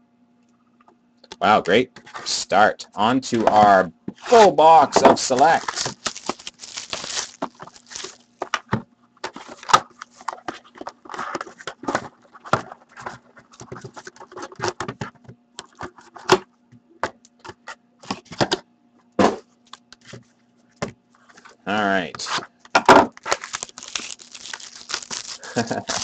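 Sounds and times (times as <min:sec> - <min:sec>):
cardboard rustling and tapping: 0:05.0 - 0:15.2
plastic wrap crinkling and tearing: 0:05.2 - 0:08.5, 0:23.1 - 0:26.0.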